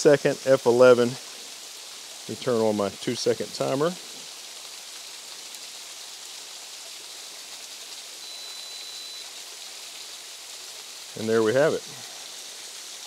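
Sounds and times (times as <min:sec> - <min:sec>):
waterfall rushing: 0:06.5 - 0:13.0
faint high tone: 0:08.2 - 0:09.3.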